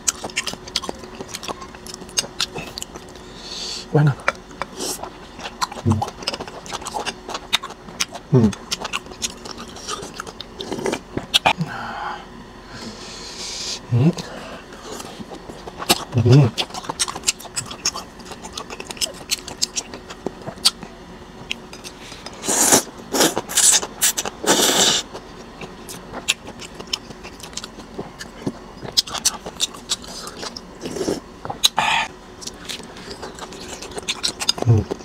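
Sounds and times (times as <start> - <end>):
wet chewing with mouth clicks: 0.0 - 3.3, 4.2 - 11.6, 14.8 - 35.0
slurping noodles: 22.4 - 25.1.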